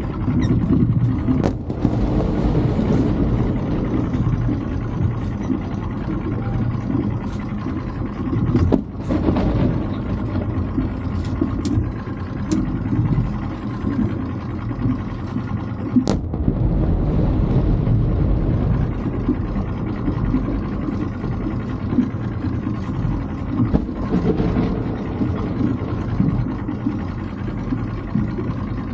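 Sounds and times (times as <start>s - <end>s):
outboard motor running: 0.0s - 28.9s
firework bangs: 1.4s - 3.9s, 16.1s - 18.0s.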